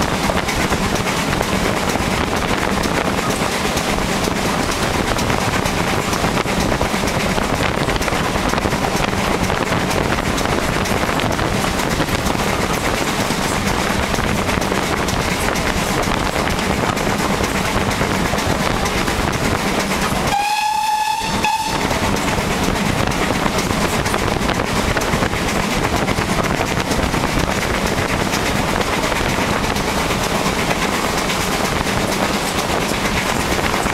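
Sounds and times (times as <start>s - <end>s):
train running noise and wind: 0.0s - 33.9s
steam locomotive whistle: 20.3s - 22.1s.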